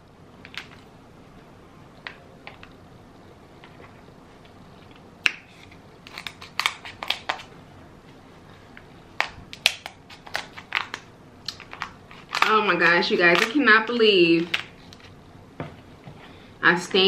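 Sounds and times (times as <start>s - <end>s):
shears cracking crab shell: 5.2s - 7.5s, 9.2s - 13.6s.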